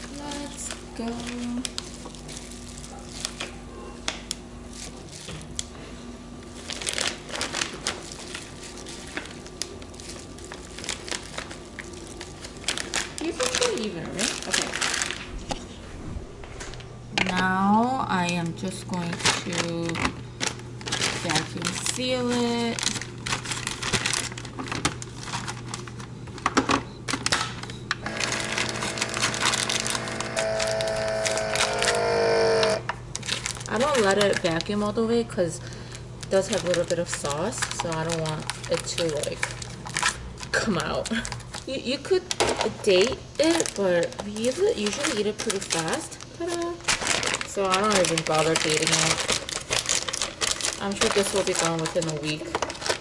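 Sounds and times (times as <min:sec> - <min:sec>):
plastic bag and gloves crinkling: 0:00.0 - 0:15.8, 0:16.7 - 0:53.0
vacuum pump humming: 0:00.0 - 0:38.8.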